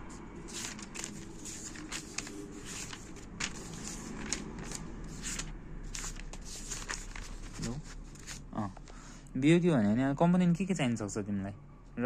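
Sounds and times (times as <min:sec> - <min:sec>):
book pages flipping: 0:00.4 - 0:09.0.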